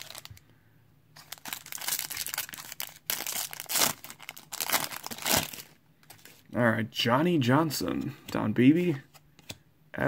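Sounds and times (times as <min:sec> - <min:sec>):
plastic wrapper crinkling and tearing: 0:00.0 - 0:00.4, 0:01.2 - 0:06.4.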